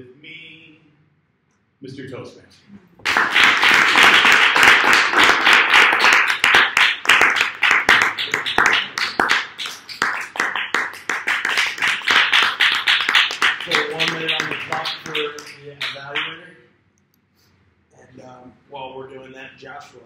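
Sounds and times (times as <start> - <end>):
audience clapping: 3.0 - 16.4.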